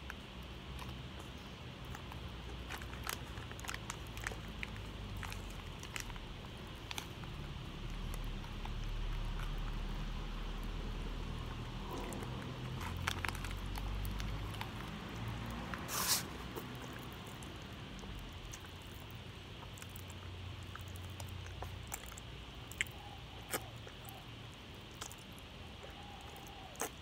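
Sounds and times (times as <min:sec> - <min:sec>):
wet licking and sucking: 0:11.6 - 0:24.2.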